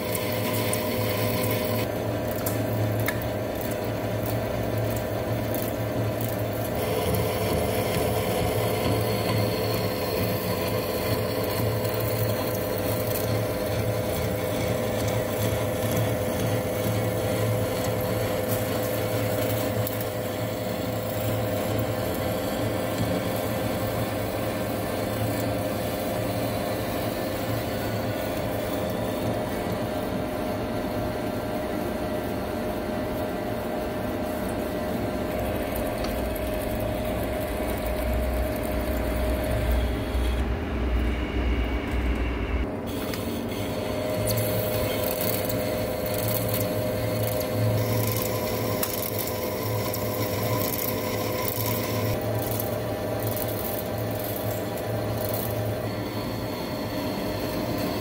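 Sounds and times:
lathe cutting steel: 0:00.0 - 0:01.9, 0:06.6 - 0:29.4, 0:42.8 - 0:58.0
motor and gearbox hum: 0:00.0 - 0:58.0.

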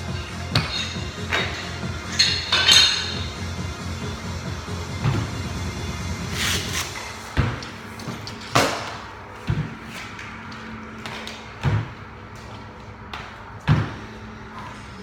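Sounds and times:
barbells thudding on rubber floor: 0:00.5 - 0:03.3, 0:07.3 - 0:09.8, 0:11.1 - 0:12.1, 0:13.2 - 0:14.2.

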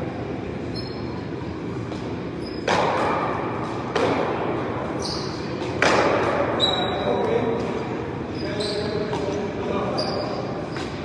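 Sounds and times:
paddleball hits echoing: 0:02.6 - 0:04.6, 0:05.6 - 0:06.6.

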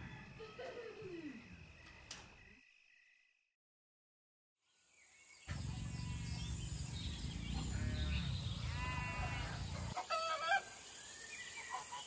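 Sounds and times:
steady low rumble: 0:05.5 - 0:09.0
animal calls: 0:07.3 - 0:10.7.

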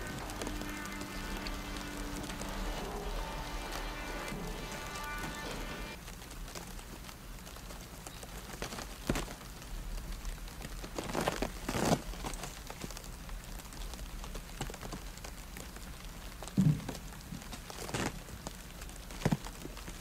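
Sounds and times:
wood fire crackling and popping: 0:00.0 - 0:20.0.

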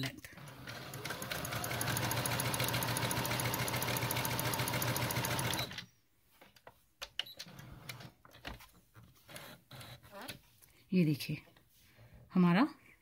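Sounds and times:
sewing machine motor hum: 0:00.4 - 0:05.8.

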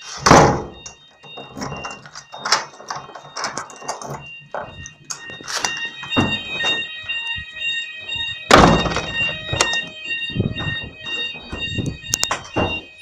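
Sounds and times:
two-tone fire alarm: 0:00.0 - 0:13.0
loud thumps: 0:08.2 - 0:12.9.

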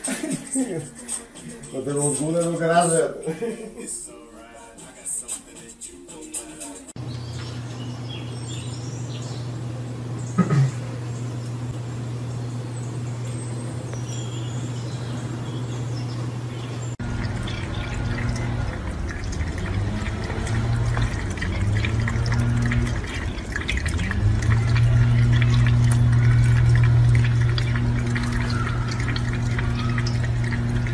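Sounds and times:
low hum: 0:07.0 - 0:30.9
faint high chirps: 0:12.4 - 0:16.9
water splashing and dripping: 0:15.6 - 0:30.9
faucet running into steel sink: 0:17.0 - 0:30.9.

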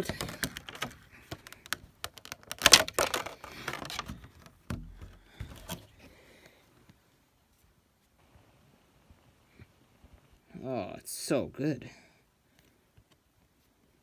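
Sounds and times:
plastic insert clicking and rattling: 0:00.0 - 0:05.8.

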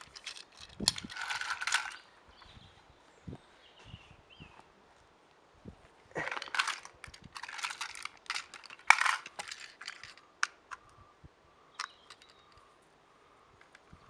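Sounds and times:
plastic toy rustling and clacking: 0:00.0 - 0:02.0, 0:06.3 - 0:10.8, 0:11.8 - 0:12.6.

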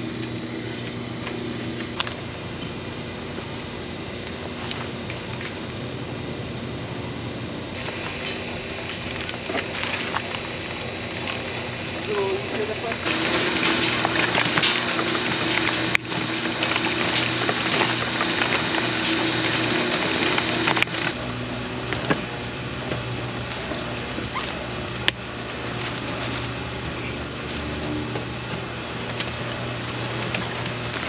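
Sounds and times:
machine humming: 0:00.0 - 0:31.0
soil pouring and pattering: 0:07.8 - 0:31.0.

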